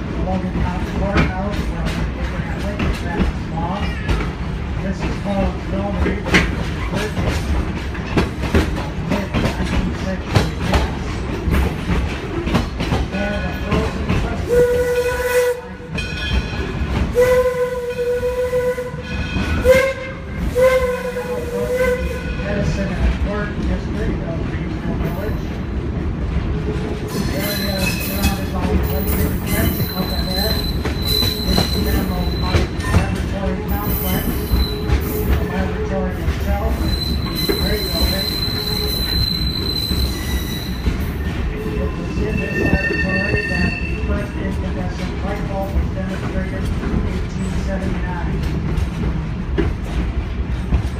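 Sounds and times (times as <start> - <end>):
train rumble and clatter: 0.0 - 50.9
steam whistle blasts: 17.2 - 22.2
wheel flanges squealing: 27.1 - 44.6.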